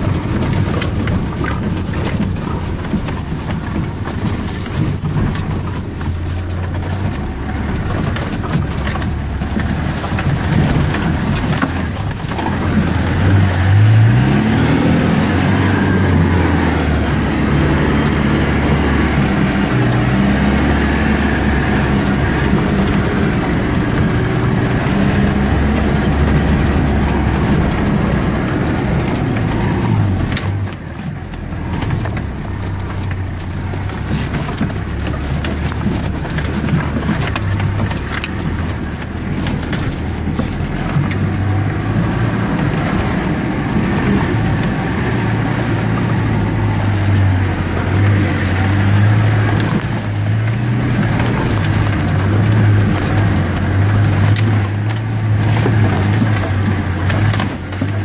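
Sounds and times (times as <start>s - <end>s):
engine running under load: 0.0s - 58.0s
knocks and rattles: 0.0s - 58.0s.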